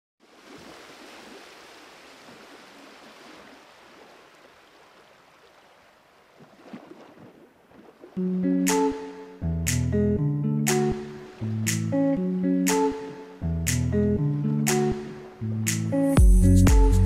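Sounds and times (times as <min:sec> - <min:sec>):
music with plucked guitar: 0:08.2 - 0:17.0.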